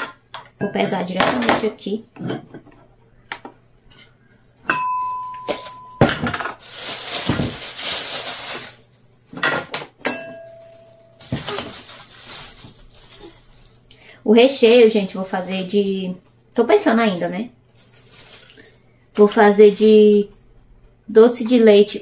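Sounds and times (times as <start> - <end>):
plastic bag rustling: 5.5 - 9.4, 10.4 - 16.1, 16.8 - 19.8.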